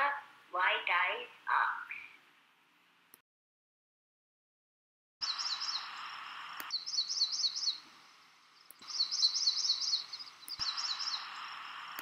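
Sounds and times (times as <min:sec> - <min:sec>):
background hiss: 0:00.0 - 0:03.2, 0:05.2 - 0:12.0
songbird chirping: 0:05.2 - 0:12.0.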